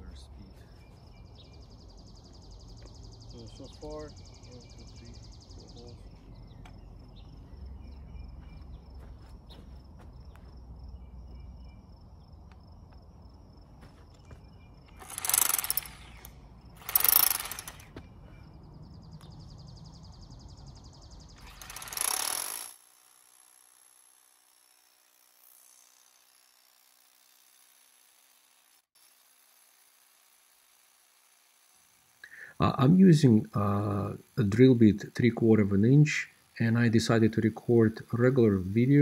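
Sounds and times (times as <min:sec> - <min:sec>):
low steady drill drone: 0:14.1 - 0:19.6, 0:20.3 - 0:39.0
harsh rotary hammering: 0:14.8 - 0:18.1, 0:21.3 - 0:32.2.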